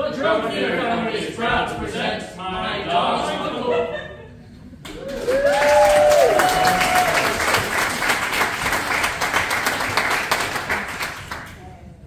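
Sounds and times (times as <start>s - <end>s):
audience applauding: 4.8s - 11.7s.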